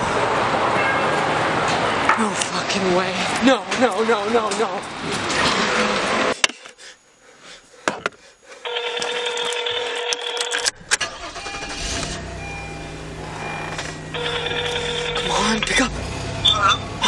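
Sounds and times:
phone ringback tone: 8.6s - 15.7s
car engine hum: 10.8s - 17.0s.

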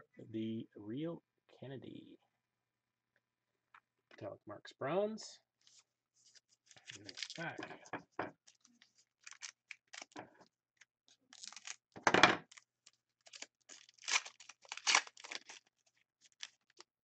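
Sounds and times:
foil crinkling: 6.6s - 7.6s, 8.4s - 10.2s, 11.2s - 16.9s
foil wrapper tearing: 6.7s - 7.6s, 8.4s - 10.2s, 11.3s - 16.9s.

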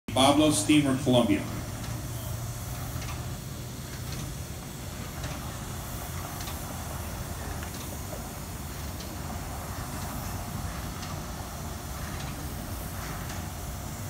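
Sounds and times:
steam plant hum and hiss: 0.1s - 14.0s.

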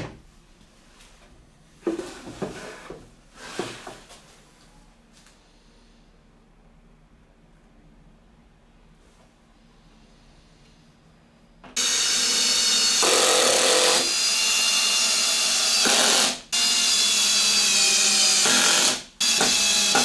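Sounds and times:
cordless drill boring into wood: 11.8s - 20.0s.

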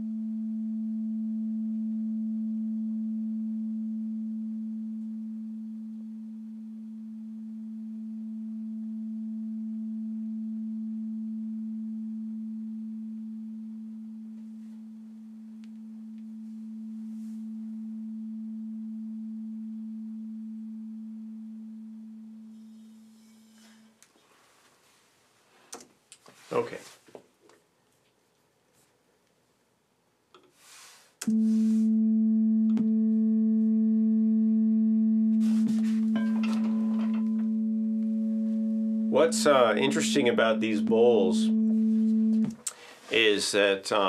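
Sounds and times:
singing bowl ringing: 0.0s - 23.9s, 31.3s - 42.5s.

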